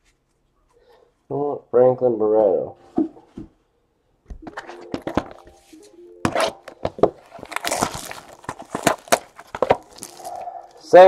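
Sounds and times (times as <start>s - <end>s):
cardboard boxes knocking: 4.4s - 5.5s, 6.2s - 10.2s
foil wrapper crinkling: 6.3s - 10.8s.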